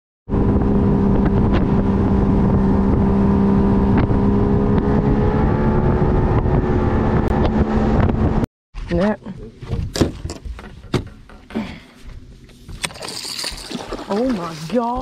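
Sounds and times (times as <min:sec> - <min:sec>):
wind buffeting microphone: 0:00.3 - 0:08.4
outboard motor running: 0:09.0 - 0:15.0.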